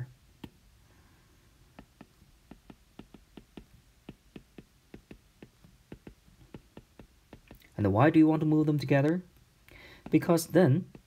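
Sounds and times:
stylus clicking on glass screen: 1.7 - 7.8.

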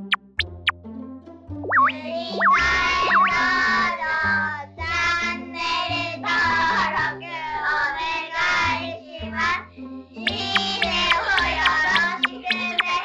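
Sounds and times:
bass line: 0.0 - 0.7, 1.7 - 3.8, 10.3 - 13.0
high sung vocal melody: 1.8 - 4.1, 10.3 - 13.0.

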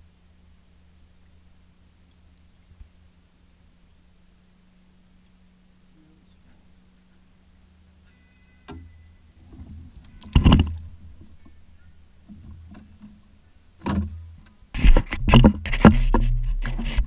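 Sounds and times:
hand scratching on microphone: 14.7 - 17.0.

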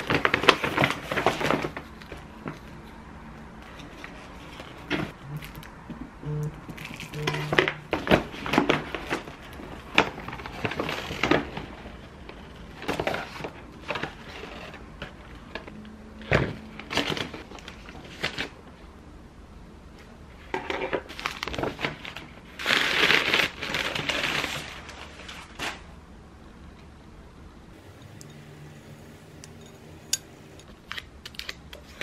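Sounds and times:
paper bag rustling: 0.0 - 2.7, 6.8 - 14.8, 21.1 - 26.0.

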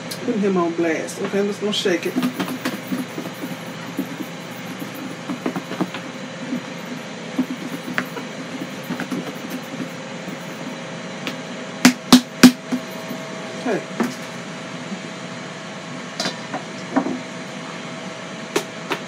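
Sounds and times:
fish shaken in plastic breader bowl: 2.0 - 10.7.

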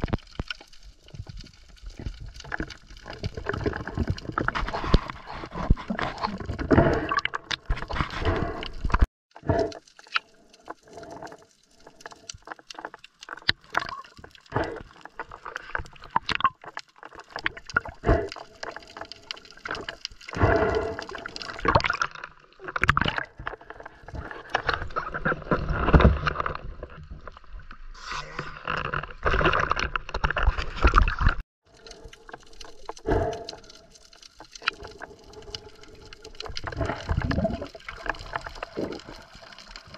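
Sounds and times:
water gurgling and sloshing: 0.0 - 39.9.

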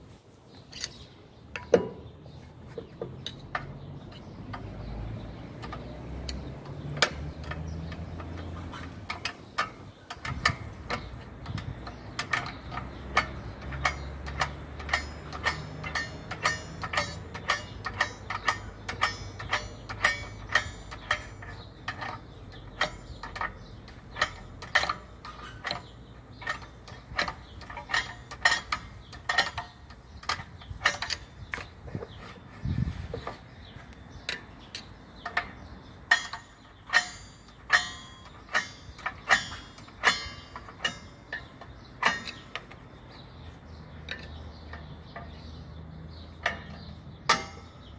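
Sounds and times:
brake adjuster clicking: 2.9 - 32.5.

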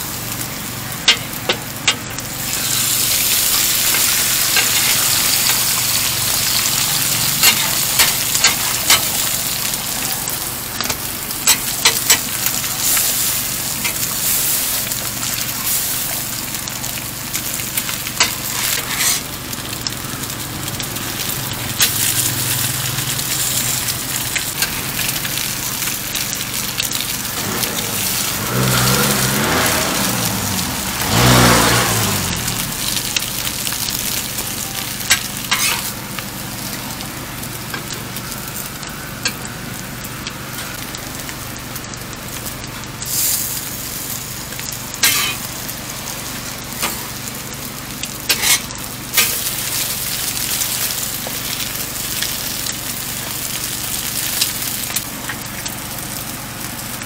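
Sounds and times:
food sizzling on a griddle: 0.0 - 57.0
metal spatula scraping griddle: 6.6 - 9.2, 18.2 - 19.3, 35.1 - 36.0, 45.0 - 45.5, 48.3 - 49.4.

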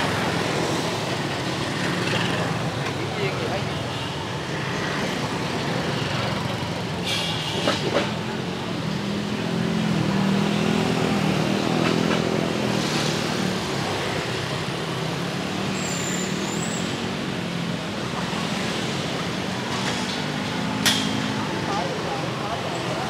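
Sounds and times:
motorbikes and cars passing: 0.0 - 23.0
brief high squeak: 15.8 - 16.8.

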